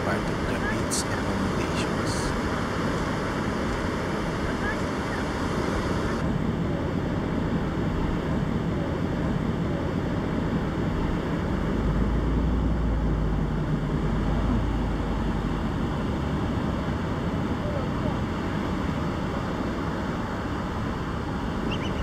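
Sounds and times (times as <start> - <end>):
wind: 0.0 - 22.0
deep low rumble: 5.9 - 19.0.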